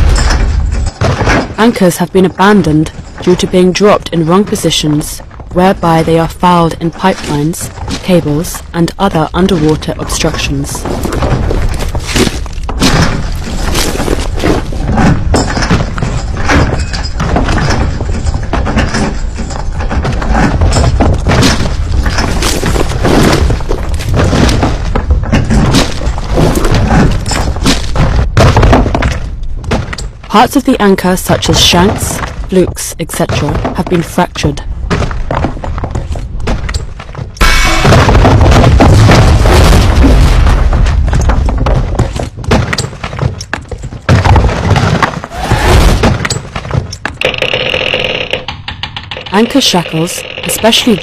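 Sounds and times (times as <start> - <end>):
chain links clattering: 0.0 - 1.6, 14.9 - 21.2
anchor chain rumbling: 11.2 - 27.6, 46.3 - 51.0.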